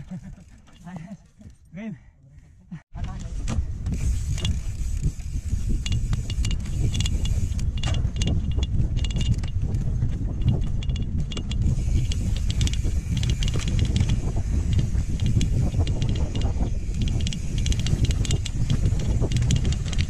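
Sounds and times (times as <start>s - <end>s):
bike chain and frame rattling: 0.0s - 1.7s, 3.9s - 20.0s
wind rumbling on microphone: 3.0s - 20.0s.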